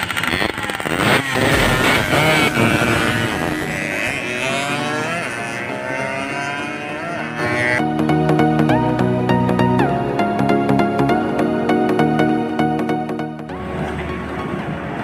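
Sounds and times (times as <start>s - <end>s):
two-stroke motorcycles revving: 0.0s - 7.8s.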